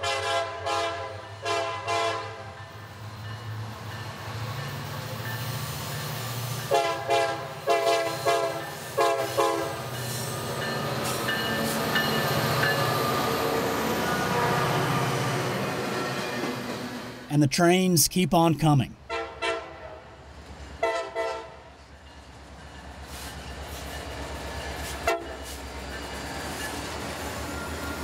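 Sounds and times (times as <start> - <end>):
locomotive air horn blasts: 0.0 - 2.4, 6.7 - 9.7
train rolling past: 2.2 - 17.3, 19.8 - 28.0.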